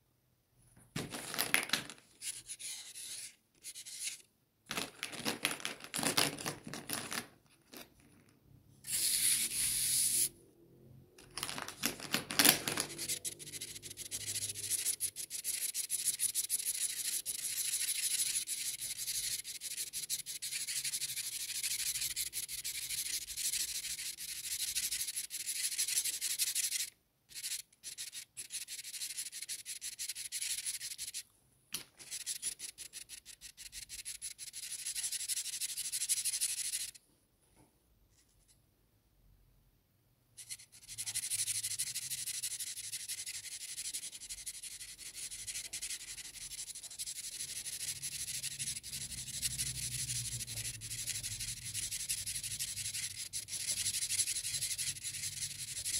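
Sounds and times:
marker scratching on paper: 2.1 - 4.2, 8.8 - 10.4, 11.5 - 31.2, 31.8 - 37.0, 40.4 - 55.9.

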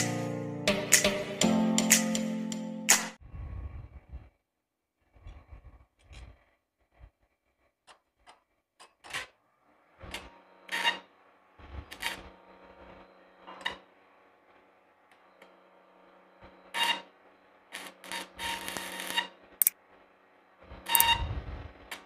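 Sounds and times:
welding rod scraping steel: 17.7 - 19.4
welding arc crackling: 17.7 - 19.6
steady welding buzz: 17.7 - 19.7.

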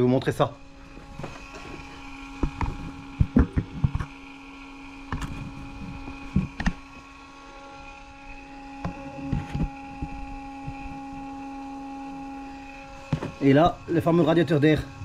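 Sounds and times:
electrical hum: 0.0 - 15.0
knocks and clicks of tools: 2.4 - 4.2, 5.0 - 6.9.

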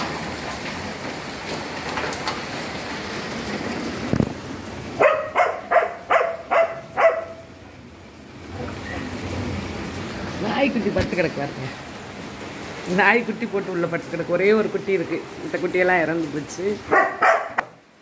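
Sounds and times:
rain falling: 0.0 - 18.0
dog yelping: 5.0 - 7.5, 16.9 - 17.6.

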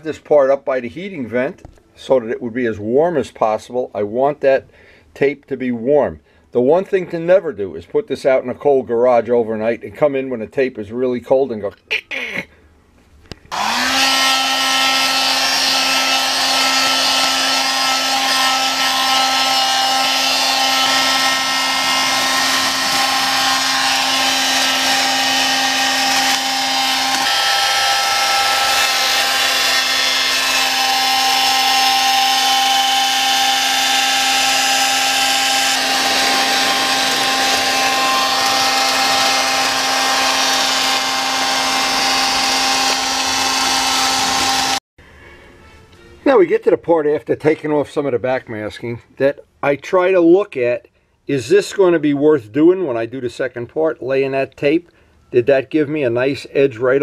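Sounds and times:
heat gun fan hum: 13.5 - 44.8.

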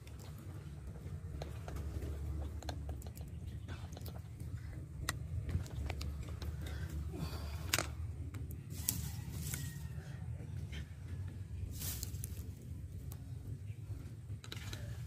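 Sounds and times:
low steady rumble: 0.0 - 15.0
leaves and twigs rustling: 8.6 - 10.1, 11.6 - 13.0.

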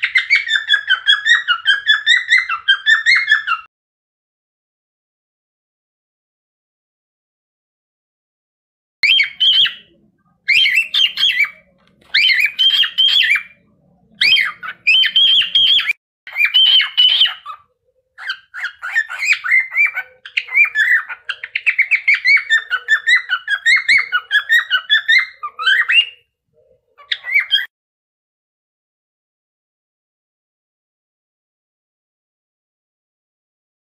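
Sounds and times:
cockatiel chirping: 0.0 - 3.7, 9.0 - 27.7
cockatiel whistling: 0.0 - 3.7, 9.0 - 13.6, 14.2 - 17.6, 18.2 - 26.2, 27.0 - 27.7.

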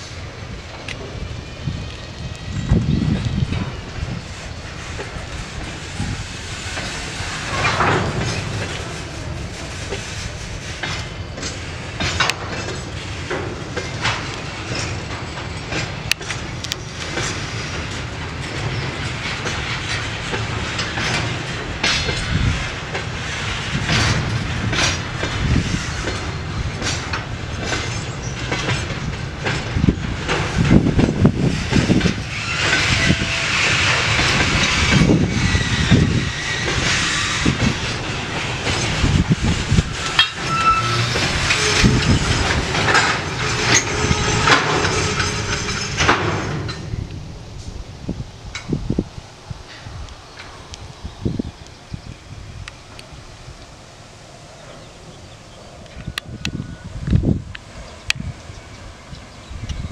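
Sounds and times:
wheels clicking over rail joints: 0.0 - 53.9
freight wagon wheels rumbling on rails: 0.0 - 59.9
metallic squeal: 32.2 - 47.0.

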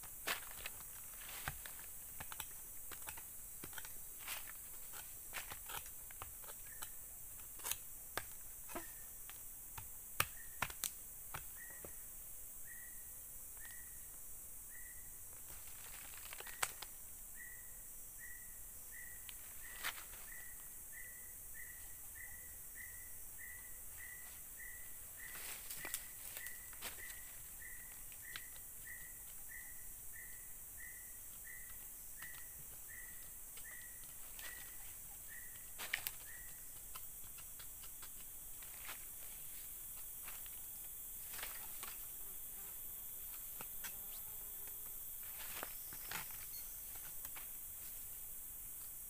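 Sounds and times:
hand tool scraping soil: 0.2 - 8.9.

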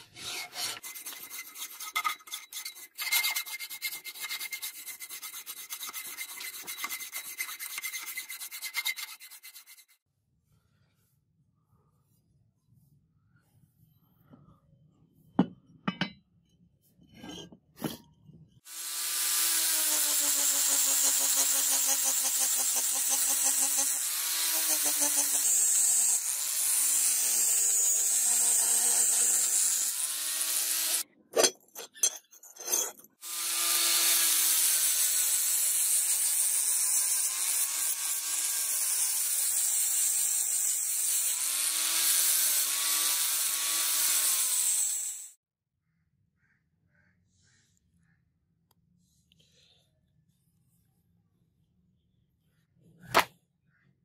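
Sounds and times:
angle grinder grinding metal: 0.0 - 9.9, 18.7 - 31.0, 32.6 - 45.4.

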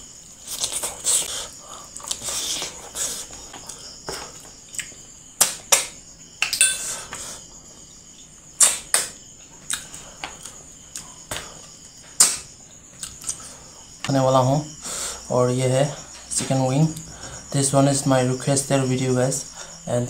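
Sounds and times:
man chewing food: 0.2 - 5.0, 9.4 - 14.0.

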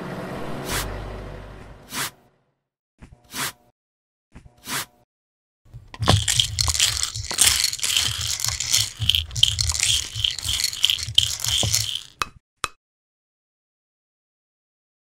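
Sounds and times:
spatula crunching sugar sprinkles: 5.8 - 12.2.

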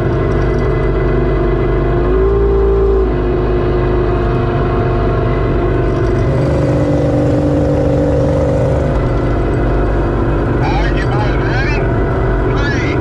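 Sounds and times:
outboard motor running: 0.0 - 13.0.

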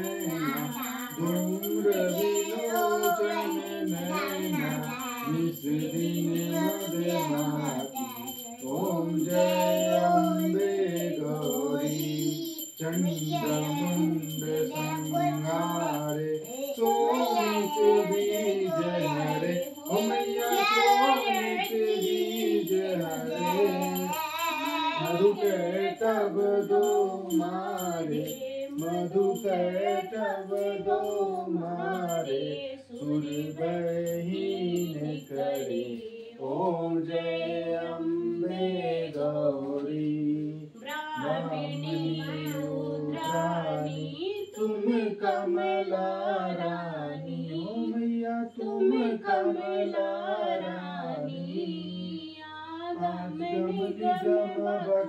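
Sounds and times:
high ringing with ticks: 0.0 - 32.4
devotional singing with music: 0.0 - 55.0.

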